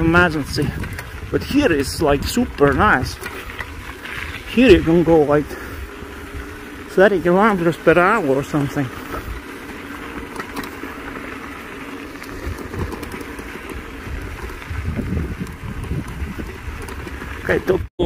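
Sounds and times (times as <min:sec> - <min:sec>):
wind on microphone: 0:00.0 - 0:06.8, 0:12.3 - 0:17.9
bike tyres rolling on dirt: 0:00.0 - 0:18.0.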